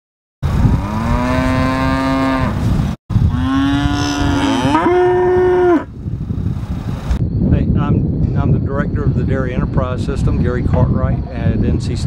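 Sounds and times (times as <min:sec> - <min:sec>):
cow mooing: 0:00.7 - 0:02.6, 0:03.3 - 0:05.9.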